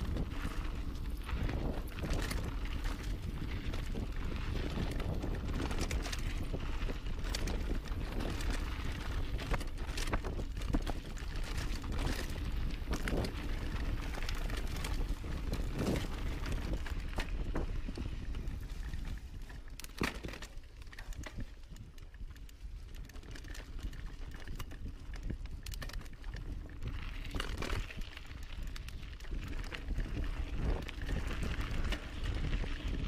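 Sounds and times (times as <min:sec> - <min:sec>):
bike knocks and rattles: 0:00.0 - 0:22.0
bike tyres rolling over dirt: 0:00.0 - 0:33.0
wind rumbling on microphone: 0:00.0 - 0:33.0.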